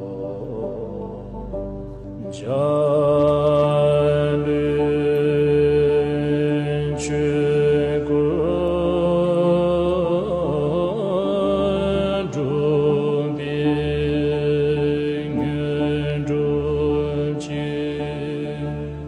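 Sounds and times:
deep voice chanting: 0:00.0 - 0:19.0
low drone: 0:00.0 - 0:19.0.

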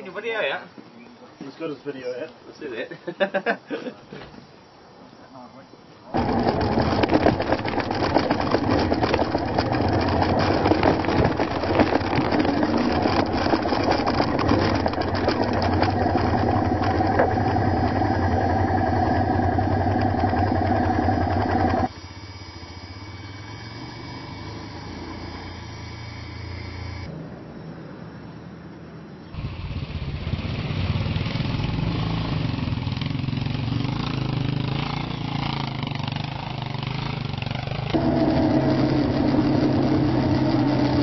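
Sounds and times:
motorcycle engine running: 0:06.1 - 0:22.0, 0:29.4 - 0:41.0
wind noise: 0:06.1 - 0:22.4
low engine hum: 0:06.1 - 0:27.2, 0:37.8 - 0:41.0
tyres on gravel road: 0:06.1 - 0:27.2, 0:29.3 - 0:41.0.

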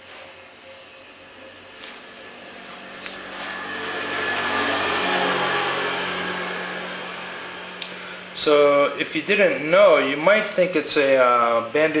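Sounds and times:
passing vehicle engine: 0:01.2 - 0:10.9.

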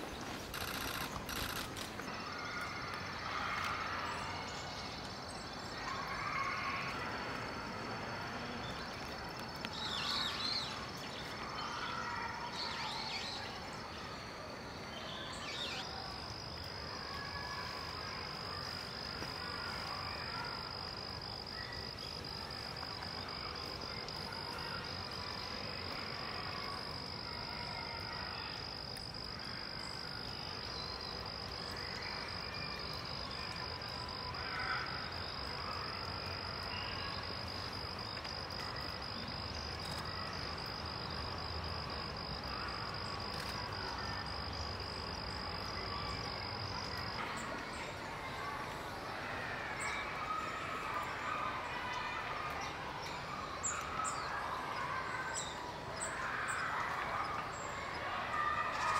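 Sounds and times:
high-pitched insect trill: 0:00.0 - 0:03.7, 0:04.5 - 0:14.0, 0:15.0 - 0:47.6.

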